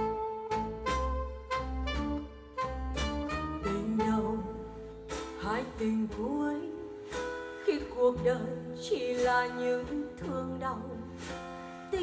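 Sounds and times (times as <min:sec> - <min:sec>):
steady bass line: 0:00.0 - 0:08.8
lead melody with sliding notes: 0:00.0 - 0:12.0.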